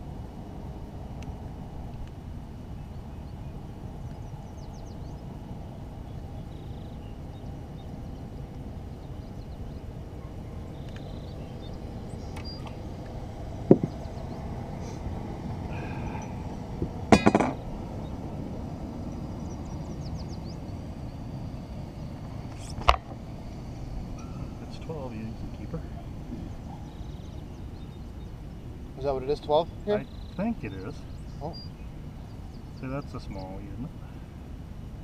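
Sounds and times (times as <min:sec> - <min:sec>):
wind: 0:00.0 - 0:35.0
knocks and clinks of tackle: 0:17.2 - 0:17.6.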